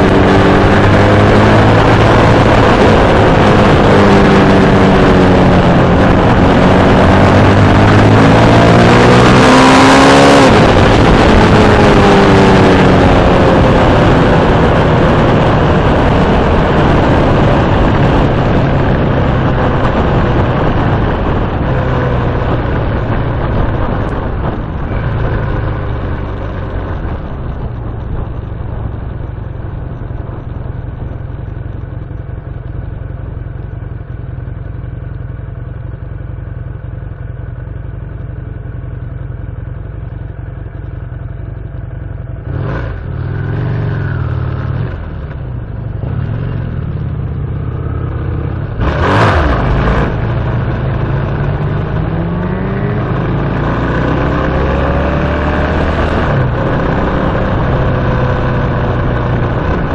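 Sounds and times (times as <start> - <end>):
vehicle engines passing: 42.4 - 59.9.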